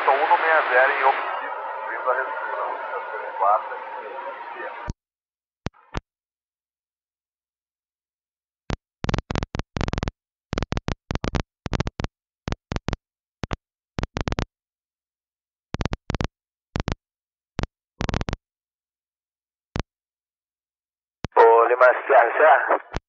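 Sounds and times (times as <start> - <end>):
radio static bursts: 0.0 - 4.9, 21.4 - 23.0.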